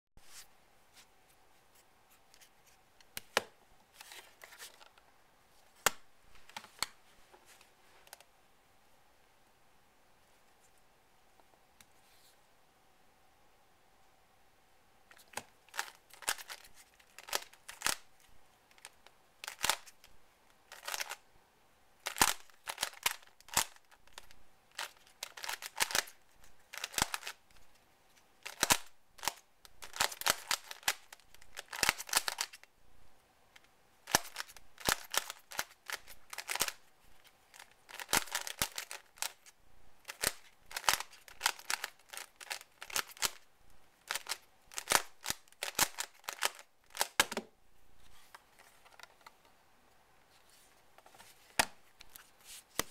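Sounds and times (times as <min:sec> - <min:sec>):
puzzle cube clicking: 0:15.1 - 0:18.1, 0:18.7 - 0:20.1, 0:20.7 - 0:21.2, 0:22.0 - 0:27.4, 0:28.4 - 0:32.6, 0:34.0 - 0:36.9, 0:37.5 - 0:47.5.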